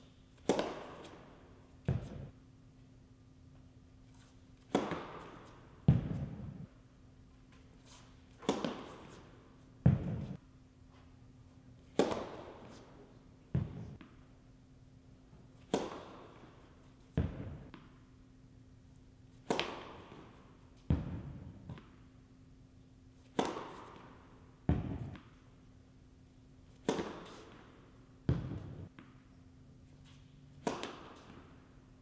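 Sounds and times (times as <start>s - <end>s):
faint steady hum: 0.0s - 32.0s
racket hitting tennis ball: 0.3s - 2.4s, 4.0s - 10.4s, 11.7s - 14.3s, 15.4s - 18.1s, 19.0s - 22.1s, 23.1s - 25.8s, 26.6s - 32.0s.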